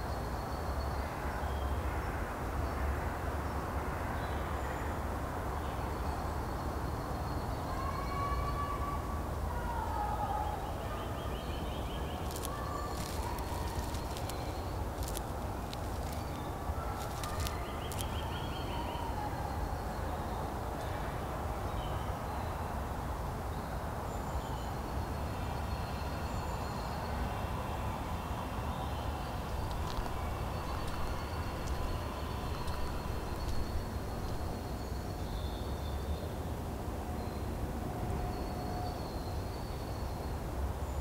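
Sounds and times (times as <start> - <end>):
distant traffic rumble: 10.6 - 21.6, 29.0 - 35.1
birds chirping and trilling: 11.8 - 19.0, 29.5 - 34.8.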